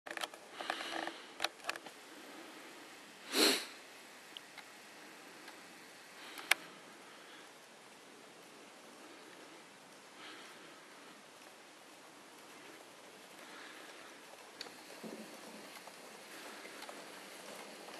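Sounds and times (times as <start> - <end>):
faint background hiss: 0.1 - 17.9
person sniffing: 3.2 - 3.8
light clicks: 6.3 - 6.7.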